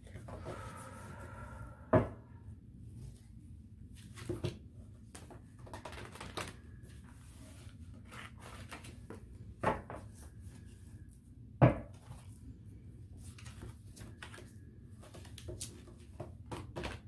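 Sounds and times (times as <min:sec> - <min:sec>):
cards being shuffled: 0:04.0 - 0:09.3.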